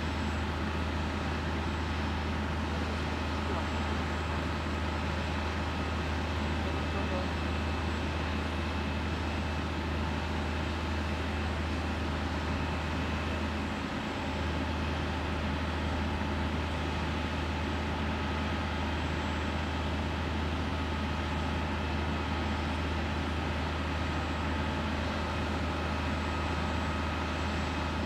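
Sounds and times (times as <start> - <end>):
large engine droning: 0.0 - 28.0.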